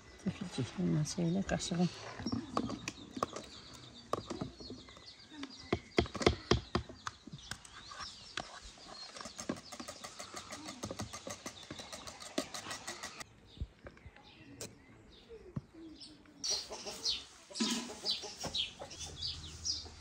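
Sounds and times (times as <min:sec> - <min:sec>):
birds chirping faintly: 0:00.0 - 0:20.0
whisk and spoons scraping a pot: 0:08.9 - 0:13.2.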